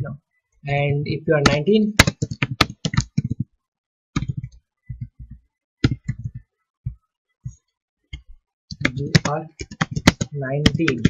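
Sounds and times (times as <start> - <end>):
computer keyboard typing: 1.4 - 3.5, 4.2 - 6.4, 8.2 - 11.0.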